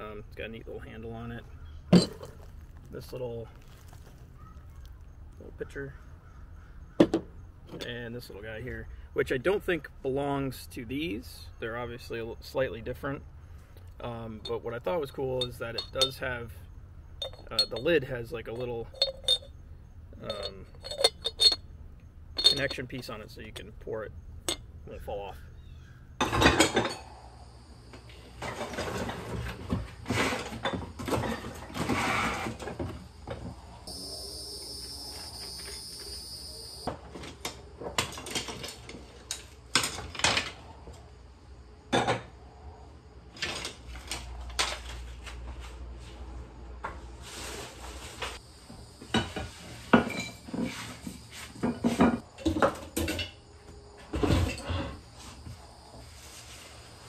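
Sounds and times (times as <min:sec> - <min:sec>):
ceramic dishes clinking: 0:15.4 - 0:16.4, 0:17.2 - 0:19.5, 0:20.2 - 0:21.6, 0:22.4 - 0:22.9.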